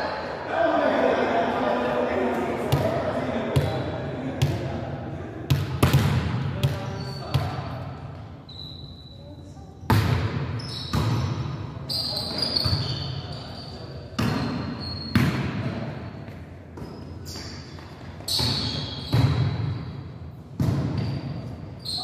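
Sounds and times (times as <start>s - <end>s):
volleyball smacks ringing in hall: 5.5s - 8.0s, 9.9s - 11.6s, 14.2s - 16.0s, 18.4s - 21.6s
sneakers squeaking on court: 5.8s - 20.0s, 20.6s - 22.0s.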